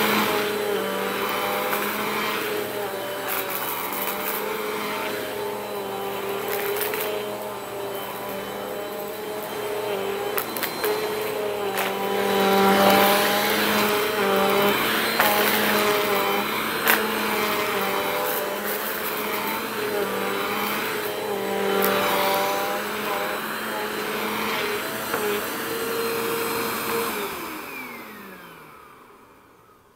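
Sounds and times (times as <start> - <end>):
vacuum cleaner motor whine: 0.0 - 29.9.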